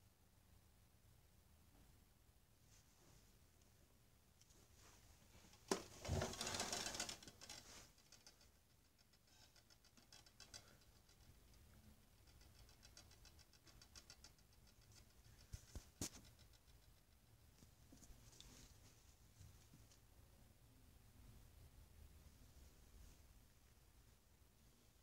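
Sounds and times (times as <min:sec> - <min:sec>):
quiet rapid ticking and scraping: 0:05.5 - 0:18.8.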